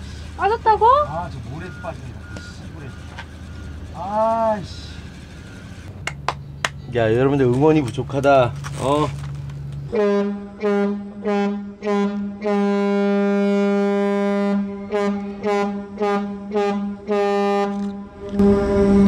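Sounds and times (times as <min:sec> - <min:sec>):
steady low drone: 0:09.8 - 0:19.0
ferry horn blasts: 0:09.9 - 0:19.0.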